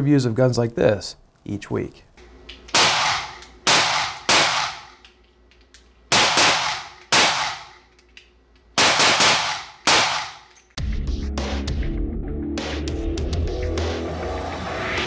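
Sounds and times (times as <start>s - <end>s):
pistol shots: 2.7s - 5.0s, 6.1s - 7.9s, 8.8s - 10.5s.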